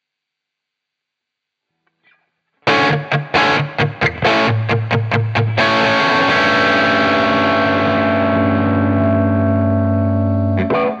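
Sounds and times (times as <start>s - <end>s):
overdriven electric guitar chords: 2.6s - 11.0s.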